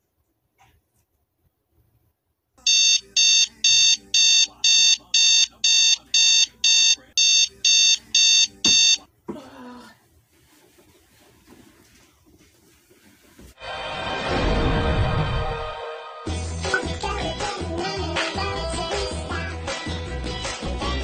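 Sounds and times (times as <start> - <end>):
alarm beeping: 2.7 - 9.0.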